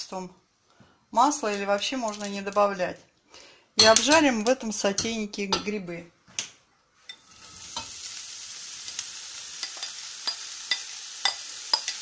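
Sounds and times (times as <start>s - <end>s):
mushrooms sizzling in a pan: 1.2s - 2.6s, 7.1s - 12.0s.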